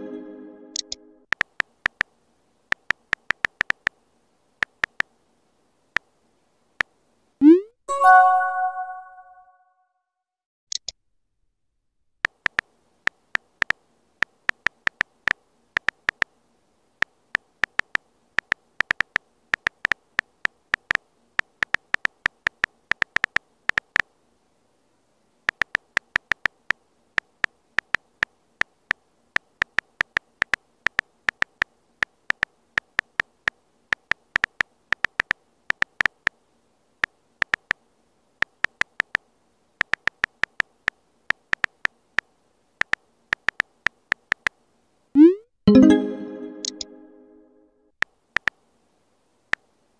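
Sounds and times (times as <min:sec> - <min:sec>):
phone keyboard key clicks: 0:00.8 - 0:02.1, 0:02.7 - 0:03.9, 0:13.6 - 0:15.1, 0:15.8 - 0:16.3, 0:17.6 - 0:20.0, 0:20.8 - 0:24.0, 0:25.5 - 0:26.6, 0:29.4 - 0:31.7, 0:33.9 - 0:36.2, 0:37.4 - 0:37.8, 0:39.8 - 0:40.7, 0:42.8 - 0:44.5.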